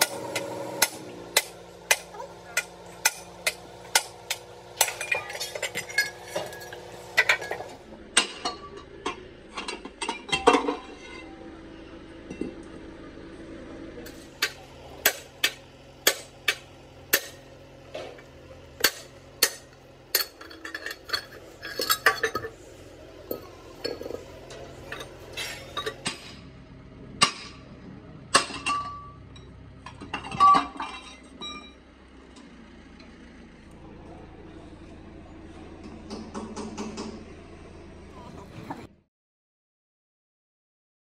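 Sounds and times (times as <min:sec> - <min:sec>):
low steady hum: 0:00.1 - 0:38.9
metal tools clinking: 0:04.8 - 0:07.8, 0:18.9 - 0:26.4.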